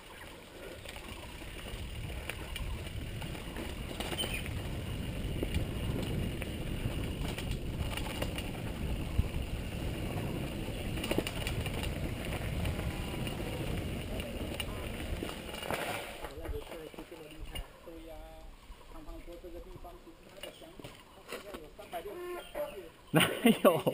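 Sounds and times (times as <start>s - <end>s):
tyres rumbling on dirt: 0.0s - 17.3s
bike knocking and rattling: 0.0s - 17.6s
wind over microphone: 0.7s - 19.2s.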